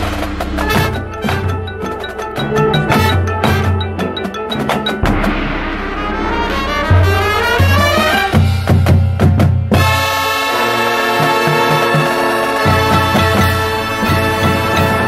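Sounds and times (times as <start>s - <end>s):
mallet keyboards: 0.0s - 10.0s, 11.1s - 15.0s
drum hits: 0.0s - 10.3s
low timpani strokes: 0.0s - 15.0s
marching band sustained brass chord: 5.1s - 15.0s.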